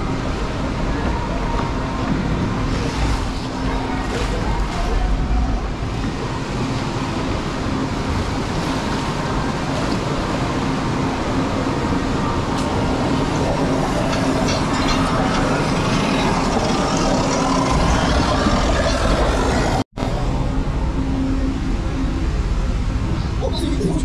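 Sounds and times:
constant hum: 0:00.0 - 0:24.0
lift conveyor rattling: 0:12.4 - 0:19.8.

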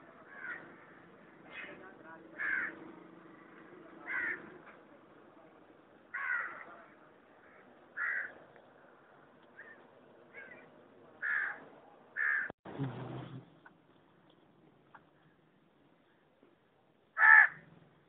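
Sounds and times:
crow cawing: 0:00.2 - 0:01.8, 0:02.4 - 0:02.8, 0:03.4 - 0:04.5, 0:06.1 - 0:08.4, 0:09.6 - 0:11.6, 0:12.2 - 0:12.5, 0:17.2 - 0:17.6.

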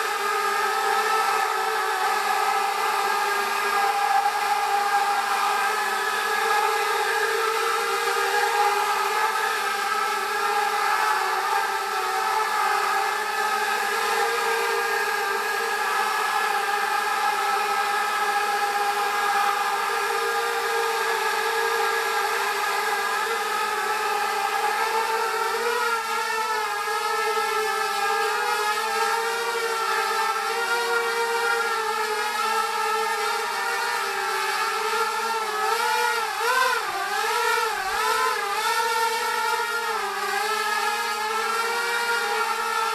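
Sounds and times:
drone propellers whirring: 0:00.0 - 0:42.9.

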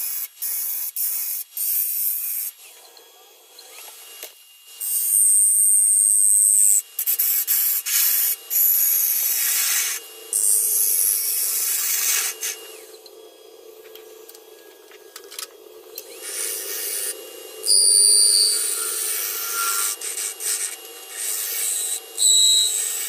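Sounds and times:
wood lathe humming: 0:02.6 - 0:23.0
sandpaper hissing on spinning wood: 0:04.8 - 0:12.9, 0:16.1 - 0:23.0.

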